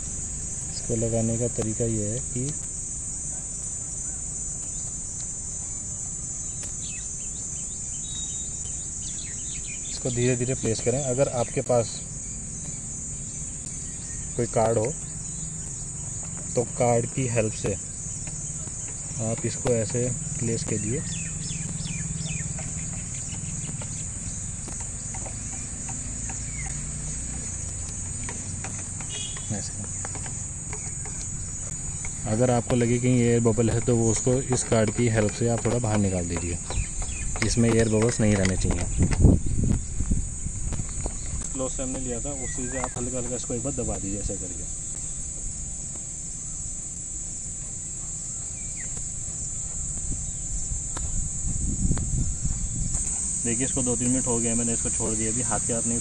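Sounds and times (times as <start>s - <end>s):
insects chirring: 0.0s - 56.0s
faint ticks: 17.6s - 33.0s.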